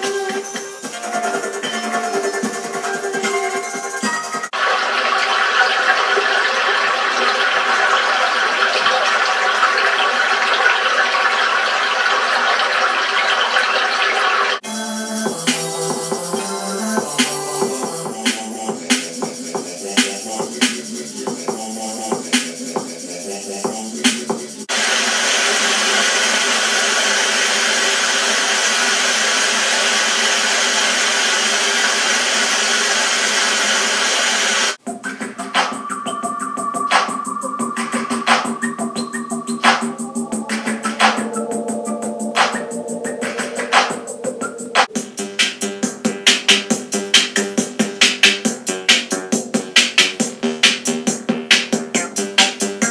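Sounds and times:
loud rushing hiss: 24.6s - 34.8s.

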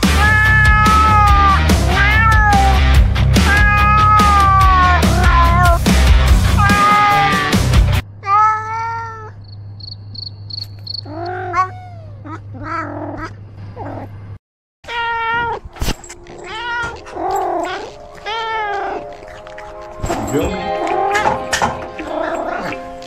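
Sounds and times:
cat yowling: 0.0s - 5.8s, 6.6s - 9.4s, 11.0s - 13.4s, 16.3s - 19.9s, 20.6s - 22.9s
heavy rock music: 0.0s - 8.0s.

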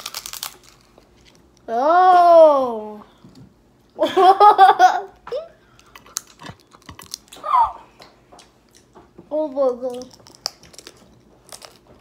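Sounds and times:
crunching taco shell: 0.0s - 1.4s, 5.8s - 7.4s, 9.9s - 12.0s
child giggling: 4.0s - 5.6s.

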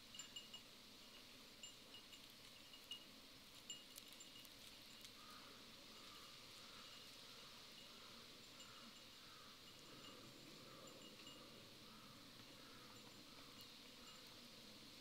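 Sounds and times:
faint ticks: 0.2s - 10.1s.

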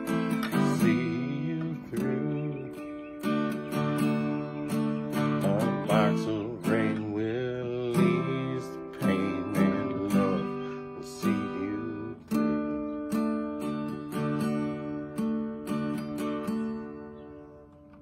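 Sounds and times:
man singing: 0.0s - 3.6s, 4.4s - 12.8s
acoustic guitar strumming: 0.0s - 18.0s.

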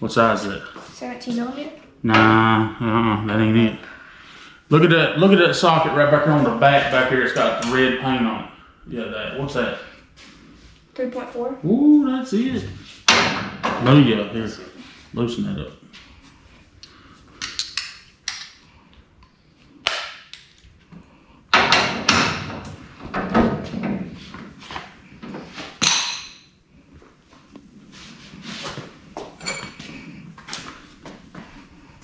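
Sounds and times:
sharp metal knocks: 13.1s - 13.9s.

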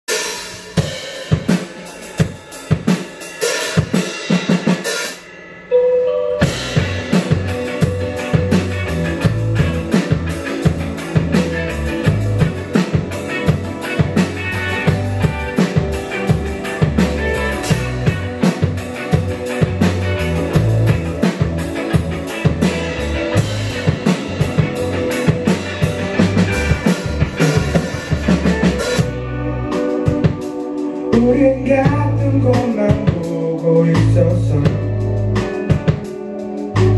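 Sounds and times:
rock band playing: 0.1s - 36.9s
drum hits: 6.4s - 29.2s.

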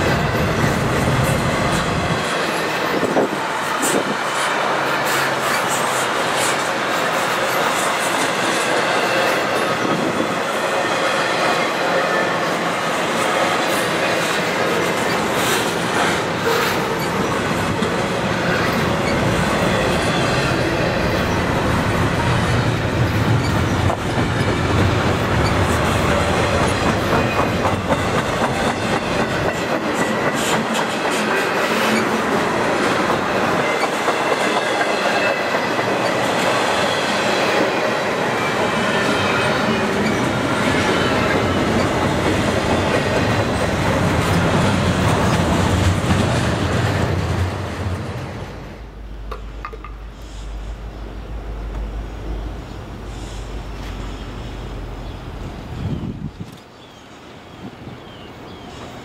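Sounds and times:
train wheels rumbling on rails: 0.0s - 56.7s
wheels clicking over rail joints: 21.8s - 36.7s.

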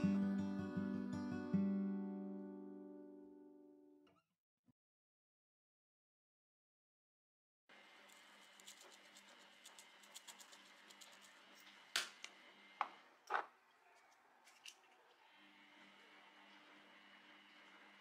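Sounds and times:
chilli flakes sprinkling: 7.9s - 11.9s.

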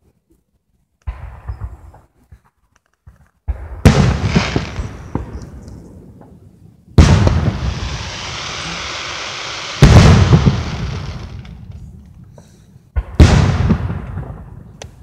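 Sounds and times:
fireworks booms: 1.1s - 2.1s, 3.5s - 11.9s, 12.9s - 15.0s.

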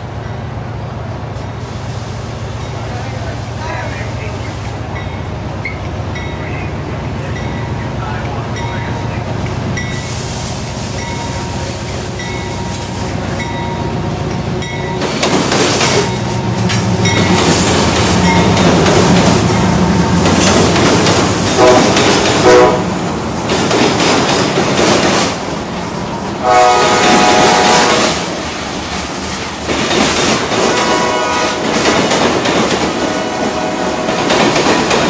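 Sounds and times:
diesel locomotives rumbling: 0.0s - 35.0s
freight cars rolling on rails: 2.6s - 35.0s
train horn blasts: 21.6s - 23.0s, 26.4s - 28.4s, 30.7s - 31.7s, 33.1s - 34.2s.

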